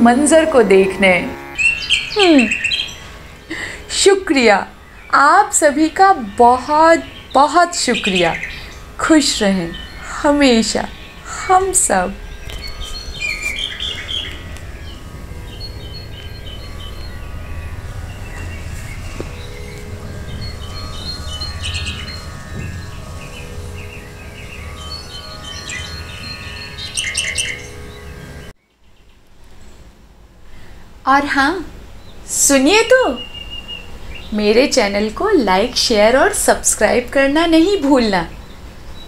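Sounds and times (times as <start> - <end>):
birds chirping: 0.0 - 29.9
steady low rumble: 8.8 - 25.4.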